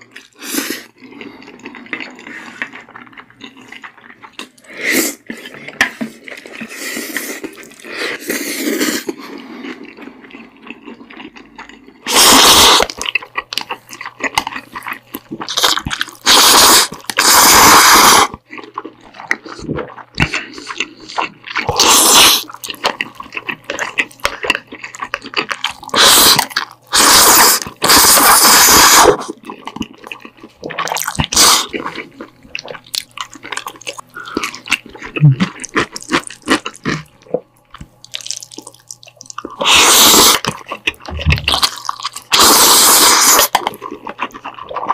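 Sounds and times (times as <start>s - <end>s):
wet chewing: 0.0s - 44.9s
loud noodle slurps: 12.1s - 13.0s, 16.2s - 18.3s, 21.6s - 22.4s, 25.8s - 29.4s, 31.3s - 31.7s, 39.6s - 40.4s, 42.3s - 43.6s.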